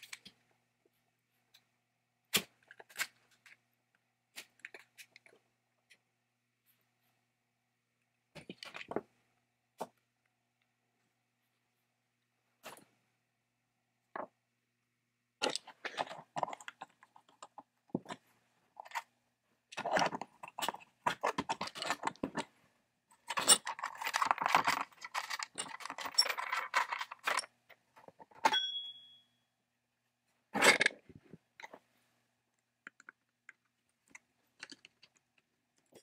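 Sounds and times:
small metal parts clattering: 0:19.8 - 0:22.4, 0:23.2 - 0:28.6
short metallic ring: 0:28.5 - 0:29.4.

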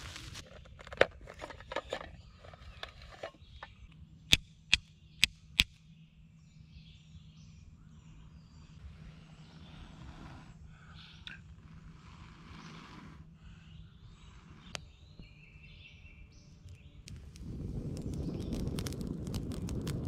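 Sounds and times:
rustling in dry leaves: 0:00.0 - 0:03.2, 0:17.1 - 0:20.0
flint striking steel clicks: 0:03.6 - 0:05.8, 0:16.6 - 0:20.0.

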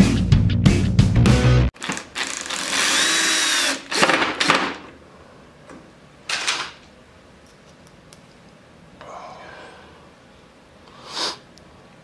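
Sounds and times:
cordless drill driving a screw: 0:01.8 - 0:04.6.

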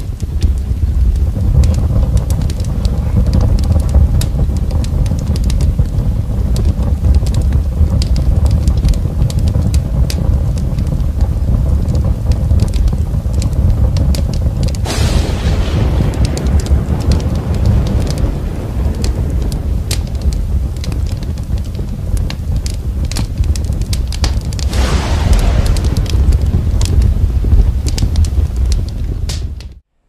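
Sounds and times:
fire crackling: 0:00.0 - 0:29.9
fire roaring: 0:00.0 - 0:29.9
loud hiss: 0:14.8 - 0:23.0, 0:24.6 - 0:29.5.

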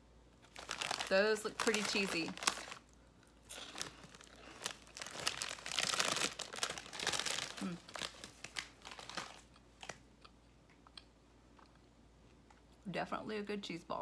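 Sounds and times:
plastic snack bag crinkling: 0:00.4 - 0:10.0.

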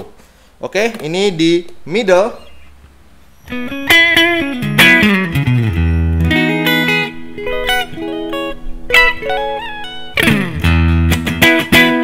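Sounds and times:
clean electric guitar: 0:03.4 - 0:12.0.

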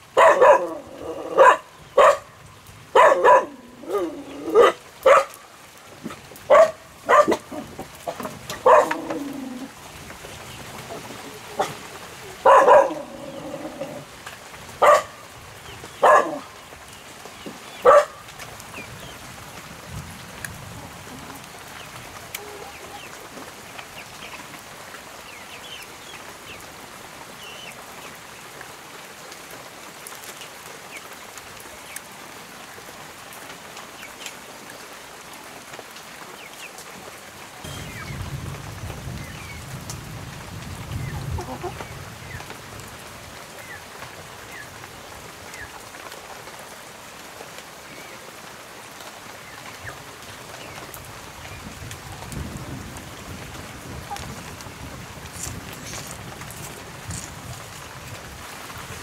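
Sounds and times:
rain falling: 0:00.0 - 0:59.0
dog barking: 0:00.2 - 0:05.4, 0:06.5 - 0:07.7, 0:08.6 - 0:09.3, 0:12.4 - 0:13.6, 0:14.8 - 0:15.2, 0:16.0 - 0:16.5, 0:17.8 - 0:18.2.

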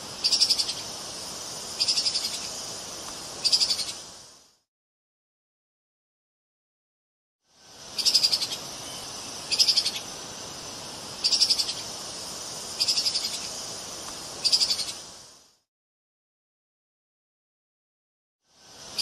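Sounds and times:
background hiss: 0:00.0 - 0:04.7, 0:07.4 - 0:15.7, 0:18.4 - 0:19.0.

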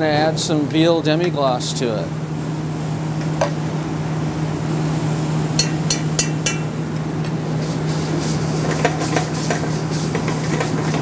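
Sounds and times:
low mechanical hum: 0:00.0 - 0:11.0
utensil clinking on steel pan: 0:05.6 - 0:06.7.

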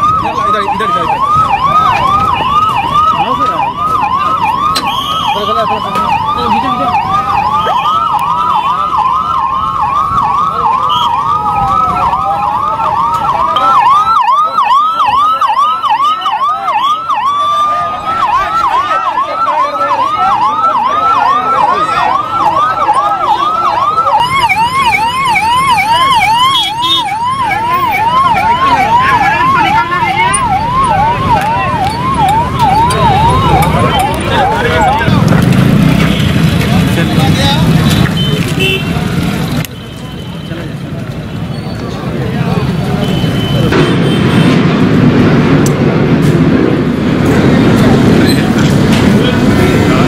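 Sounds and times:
slower siren: 0:00.0 - 0:35.8
higher siren: 0:00.0 - 0:36.6
ambulance siren yelping: 0:00.0 - 0:38.7.

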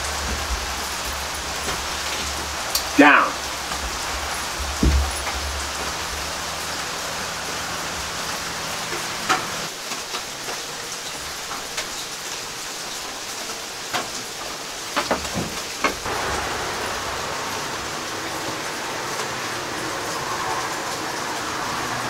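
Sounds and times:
steady rain: 0:00.0 - 0:22.0
sharp ticks and knocks: 0:03.6 - 0:06.3.

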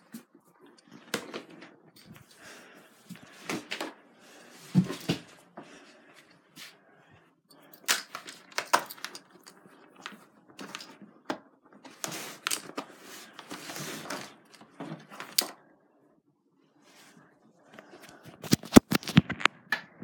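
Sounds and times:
objects clicking and tapping: 0:07.5 - 0:15.6
rustling of handled objects: 0:07.5 - 0:15.6.

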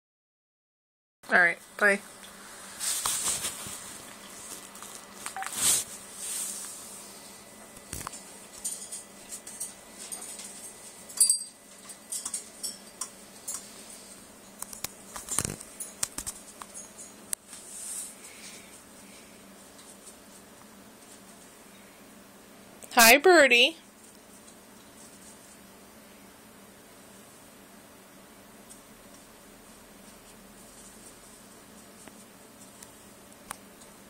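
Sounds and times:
parrot clicking and scrabbling: 0:14.6 - 0:17.1.

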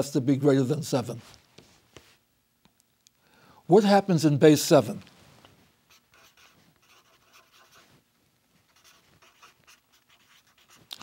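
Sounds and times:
marker scratching on paper: 0:05.9 - 0:08.0, 0:08.7 - 0:11.0.

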